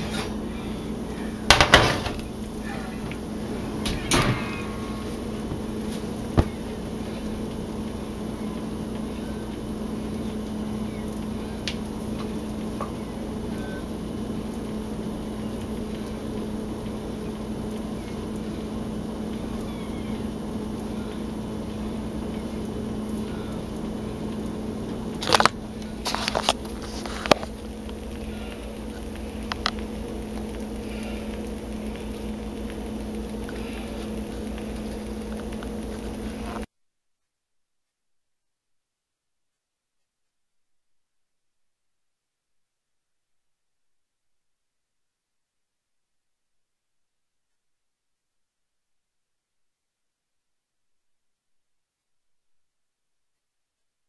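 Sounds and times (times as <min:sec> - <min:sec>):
steady low hum: 0:00.0 - 0:36.7.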